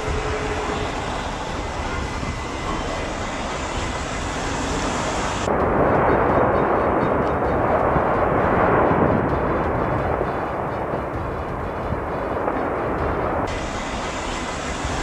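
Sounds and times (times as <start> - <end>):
volcanic eruption rumble: 0.0 - 15.0.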